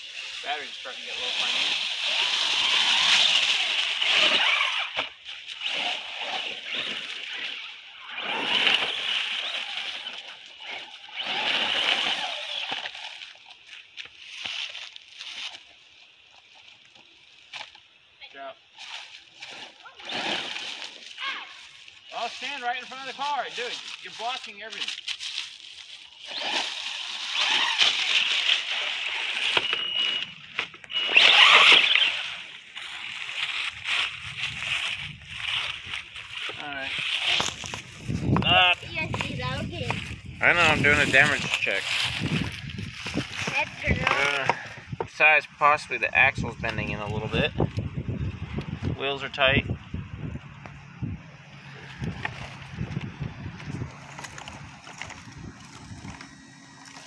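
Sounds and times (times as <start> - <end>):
tyres churning through leaves: 0.0 - 15.8, 18.6 - 47.6, 49.0 - 57.0
rc truck driving over gravel: 0.0 - 18.0, 18.6 - 57.0
high motor whine: 25.8 - 57.0.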